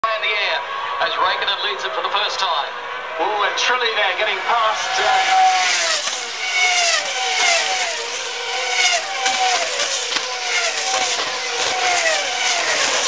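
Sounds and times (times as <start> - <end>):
racing cars passing at speed: 2.8 - 13.0.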